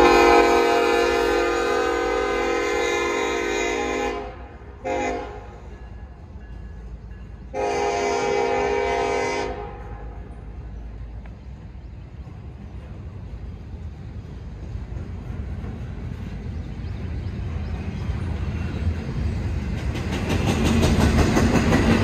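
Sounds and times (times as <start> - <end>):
locomotive horn blasts: 0.0 - 5.7, 7.5 - 10.3
rumble of passing freight cars: 0.0 - 22.0.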